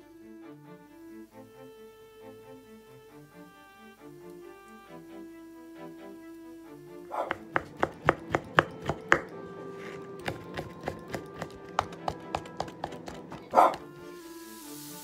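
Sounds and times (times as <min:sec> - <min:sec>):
knife chopping on wooden board: 0:07.2 - 0:13.9.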